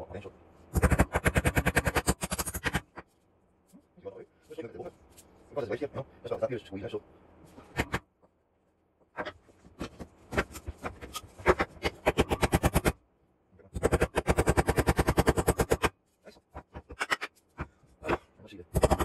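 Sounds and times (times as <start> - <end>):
hammer striking nails into wood: 0.8 - 2.9, 13.7 - 15.9, 18.7 - 19.0.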